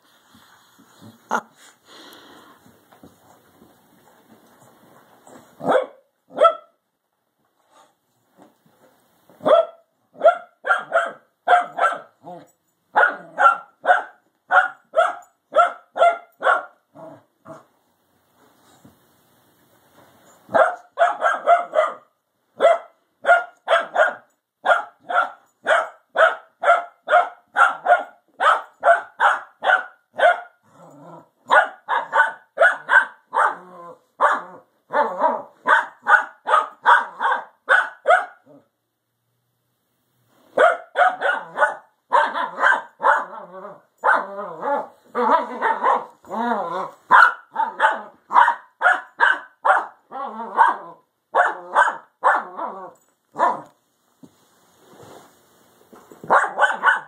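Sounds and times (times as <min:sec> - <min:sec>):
dog barking sharply: 0:05.6 - 0:06.7, 0:09.4 - 0:12.1, 0:13.0 - 0:16.8, 0:20.5 - 0:30.5, 0:31.5 - 0:33.6, 0:35.2 - 0:38.4, 0:40.6 - 0:43.3, 0:47.1 - 0:50.0, 0:51.4 - 0:52.5, 0:56.3 - 0:57.0.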